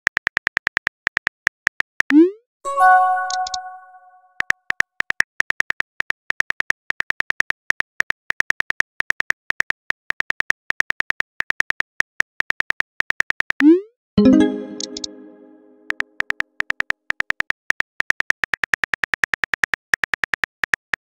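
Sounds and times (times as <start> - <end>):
message chime: 2.7 - 4.3, 14.2 - 15.9
phone keyboard typing clicks: 3.1 - 3.9, 14.3 - 16.0.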